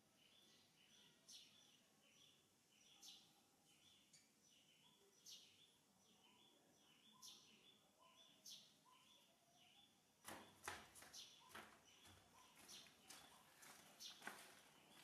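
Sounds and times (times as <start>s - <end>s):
bird chirps: 0.2s - 15.0s
rustling knocks: 10.2s - 15.0s.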